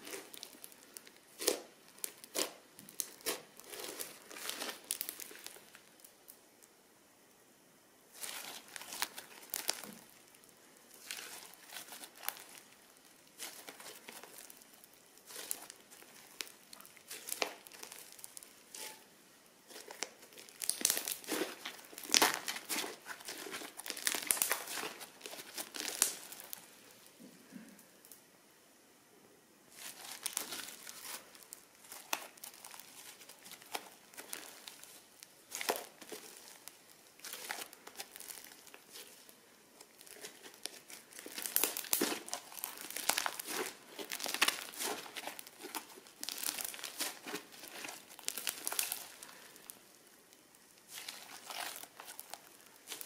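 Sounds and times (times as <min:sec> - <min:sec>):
crunchy slime crackling: 0:00.0 - 0:06.4, 0:08.1 - 0:27.2, 0:29.7 - 0:53.0.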